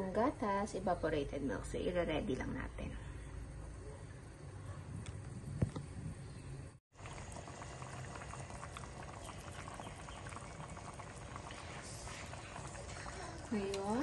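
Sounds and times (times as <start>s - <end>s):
soup boiling in a pan: 6.9s - 14.0s.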